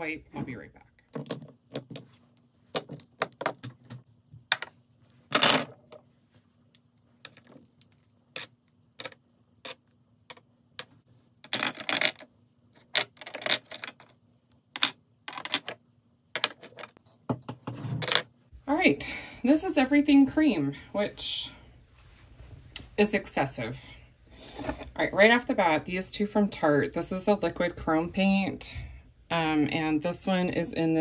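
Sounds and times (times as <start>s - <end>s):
makeup containers clattering on desk: 7.3s - 14.2s, 16.4s - 18.3s.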